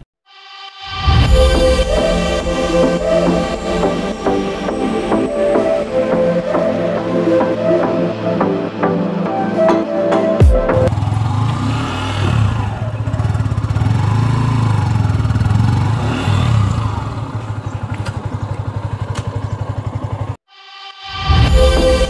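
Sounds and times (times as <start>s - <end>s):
music: 0.3s - 10.9s, 20.5s - 22.0s
motorcycle engine running: 10.9s - 20.4s.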